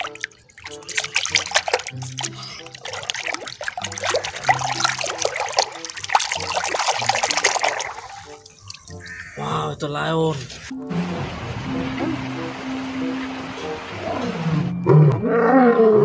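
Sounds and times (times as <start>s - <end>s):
water splashing and sloshing: 0.0s - 14.8s
soft background music: 0.0s - 16.0s.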